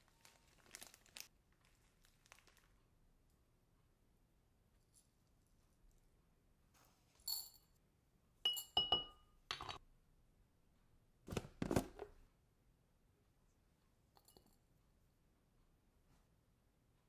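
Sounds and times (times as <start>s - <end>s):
metal spoon clinking on glass bowl: 8.5s - 9.8s.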